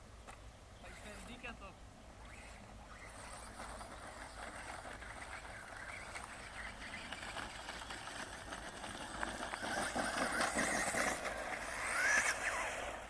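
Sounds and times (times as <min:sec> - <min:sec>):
electric motor whine: 0:02.2 - 0:13.0
tyres crunching over gravel: 0:03.4 - 0:12.4.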